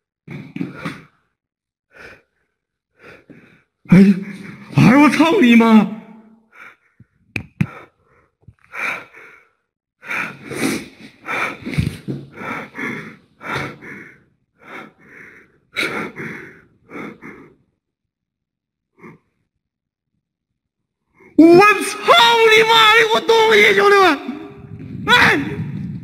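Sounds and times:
man breathing heavily: 0.6 - 4.8, 6.5 - 17.8.

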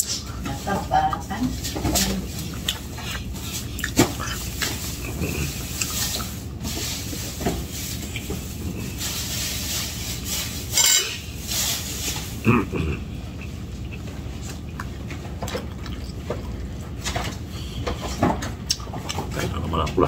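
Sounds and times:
steady low hum: 0.0 - 20.0
dishes and utensils clinking: 10.7 - 12.3.

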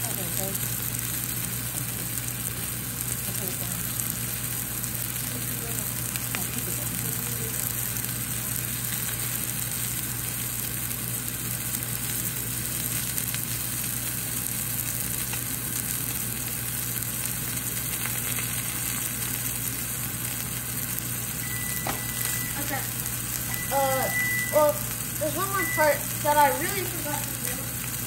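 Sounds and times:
fish sizzling in oil: 0.0 - 28.0
low steady hum: 0.0 - 28.0.

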